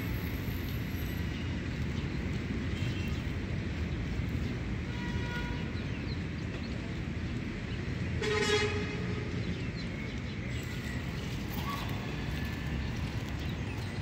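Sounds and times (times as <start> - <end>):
vehicle horn toot: 8.2 - 9.0.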